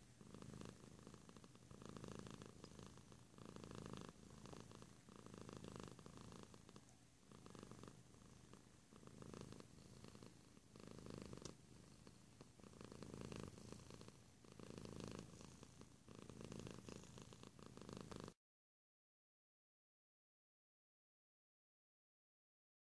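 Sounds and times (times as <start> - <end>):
cat purring: 0.0 - 18.4.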